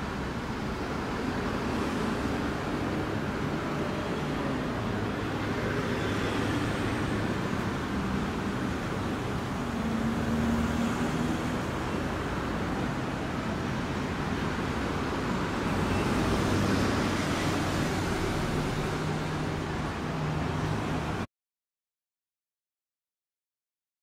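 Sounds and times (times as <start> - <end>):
traffic engine and tyre noise: 0.0 - 21.3.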